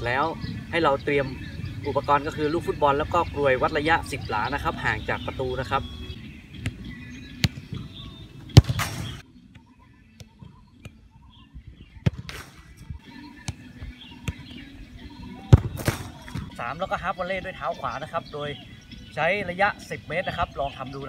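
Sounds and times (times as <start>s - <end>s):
football bouncing: 6.6s - 7.9s, 8.5s - 11.0s, 12.0s - 12.5s, 15.4s - 16.6s
football sharp kick: 8.5s - 9.2s, 12.0s - 12.7s, 15.4s - 16.6s.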